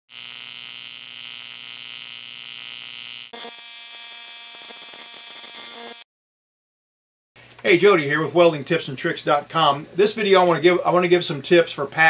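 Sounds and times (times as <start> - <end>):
welding arc buzzing: 0.1 - 6.1.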